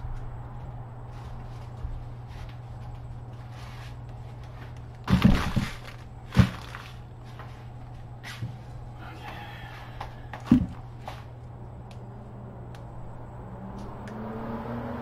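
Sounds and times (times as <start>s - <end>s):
low hum: 0.0s - 15.0s
paper bag rustling: 5.0s - 7.4s.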